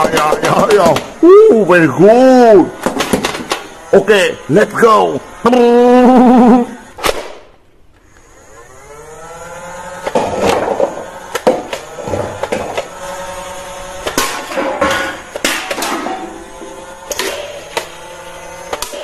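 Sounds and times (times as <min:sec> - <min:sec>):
toy blaster motor whirring: 0:00.0 - 0:19.0.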